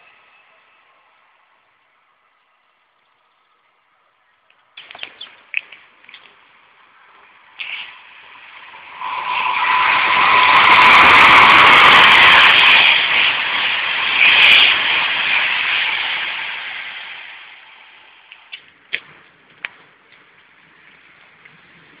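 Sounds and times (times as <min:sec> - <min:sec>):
steady whine: 0:05.1 - 0:20.0
train rushing past: 0:05.8 - 0:19.3.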